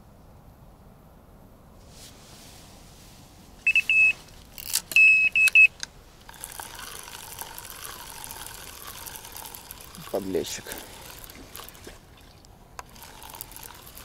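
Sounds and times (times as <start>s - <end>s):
rustling and handling noise: 1.8s - 5.0s.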